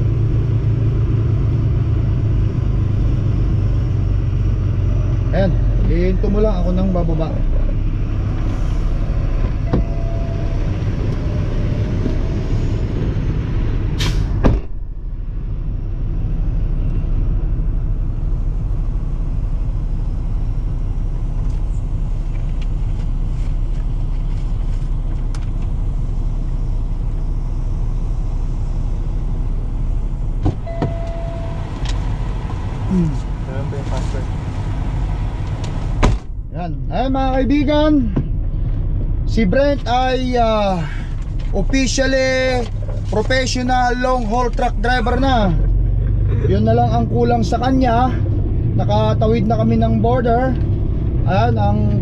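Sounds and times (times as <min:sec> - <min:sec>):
truck diesel engine running: 0:00.0 - 0:52.0
short beep: 0:09.6 - 0:12.8, 0:30.6 - 0:31.8
cab door shutting bang: 0:14.1 - 0:14.9, 0:30.4 - 0:31.3, 0:36.0 - 0:36.4.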